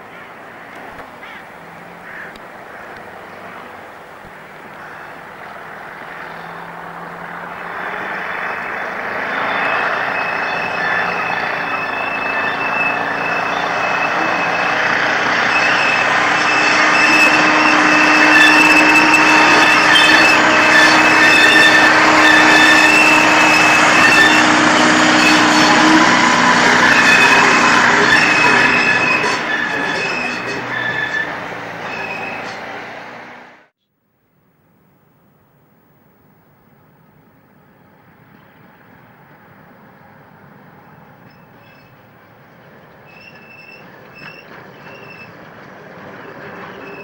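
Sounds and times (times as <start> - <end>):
diesel locomotive running: 0.0 - 33.7, 34.6 - 47.0
high-pitched wheel squeal: 4.8 - 33.5, 40.7 - 42.1, 42.8 - 47.0.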